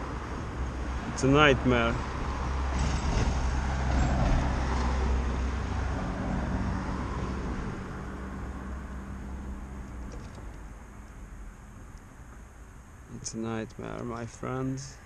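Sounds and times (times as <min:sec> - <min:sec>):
vehicle passing: 0:00.0 - 0:11.4.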